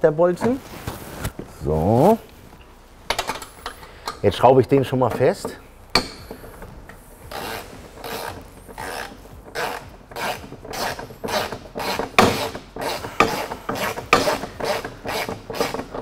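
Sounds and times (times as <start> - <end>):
ratchet wrench rasping: 5.4 - 16.0.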